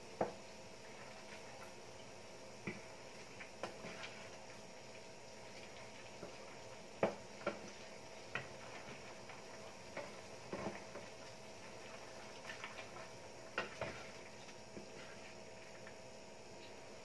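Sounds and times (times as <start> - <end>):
sauce simmering: 0.0 - 17.0
wooden spatula knocking on skillet: 7.0 - 7.6.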